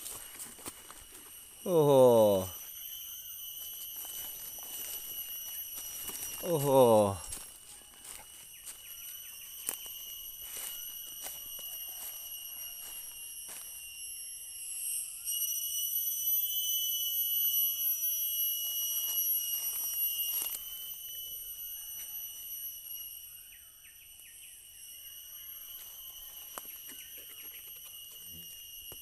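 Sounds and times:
night insects droning: 0.0s - 29.0s
footsteps through leaf litter: 10.4s - 13.7s.

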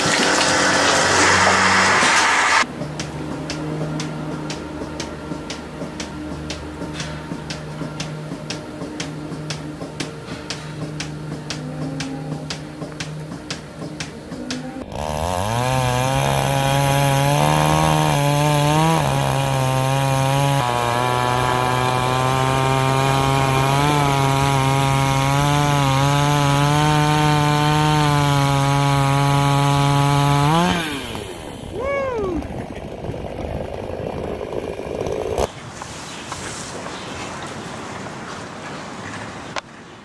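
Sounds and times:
chainsaw cutting wood: 0.0s - 2.7s, 14.8s - 35.5s.

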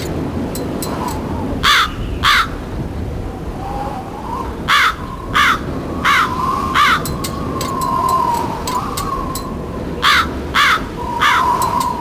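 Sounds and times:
crow cawing: 1.6s - 2.6s, 4.7s - 7.1s, 10.0s - 11.6s.

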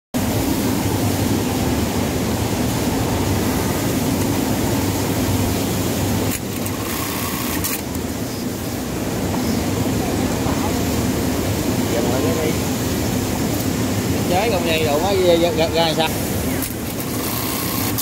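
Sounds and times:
sewing machinery hum: 0.2s - 8.4s, 15.9s - 18.0s.

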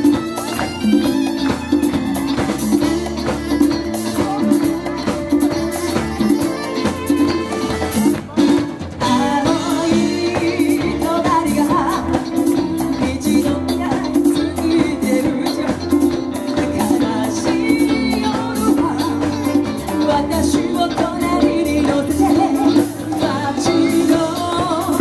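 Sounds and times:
congas: 0.0s - 25.0s
live pop band playing: 0.0s - 25.0s
saxophone: 0.0s - 25.0s
woman singing lead vocal: 9.0s - 25.0s.

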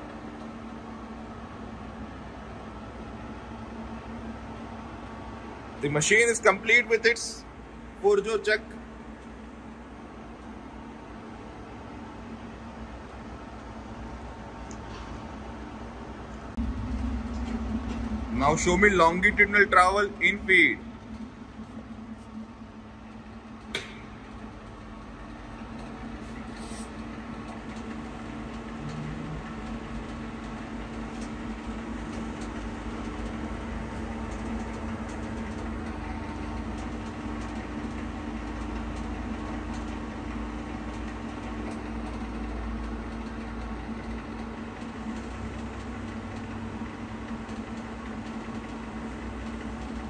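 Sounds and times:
lathe humming: 16.6s - 50.0s
sharp click: 23.6s - 24.2s.

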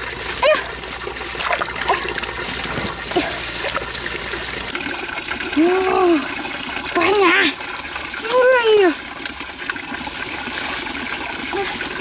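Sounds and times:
stream water splashing: 0.0s - 12.0s
small sharp splashes: 1.3s - 4.6s.

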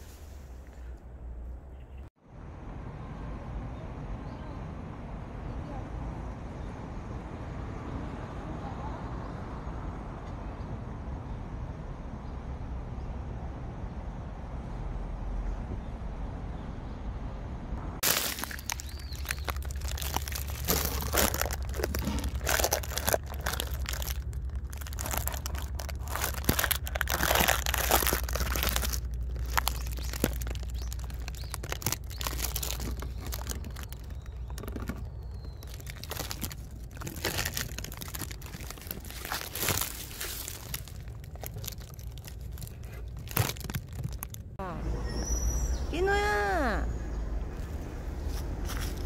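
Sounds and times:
camera scraping inside pipe: 20.7s - 22.8s.

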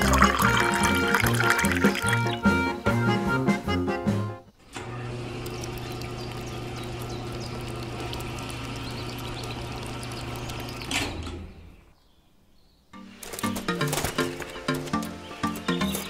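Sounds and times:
small electric motor humming: 4.8s - 10.9s
cement mix rattling: 13.1s - 16.0s.

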